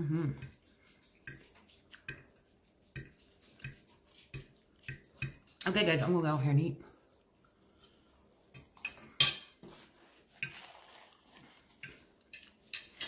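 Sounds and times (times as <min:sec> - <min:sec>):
metal fork clinking on dish: 0:08.6 - 0:09.6.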